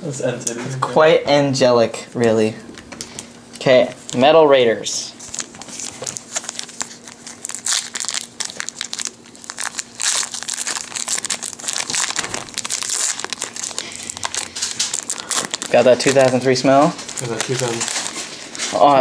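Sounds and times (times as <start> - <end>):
foil wrapper crinkling and tearing: 3.9 - 4.2, 5.1 - 19.0.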